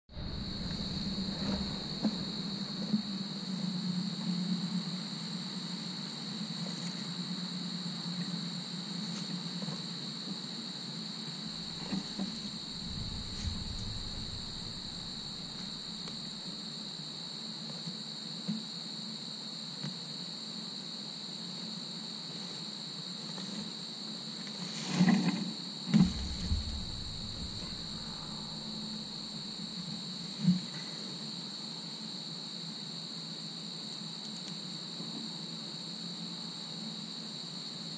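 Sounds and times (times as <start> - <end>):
low steady hum: 0.1 - 5.5, 11.4 - 16.8, 25.9 - 30.4
insects chorus: 0.1 - 37.9
heavy thumps and crackling: 11.6 - 16.3, 26.0 - 29.6.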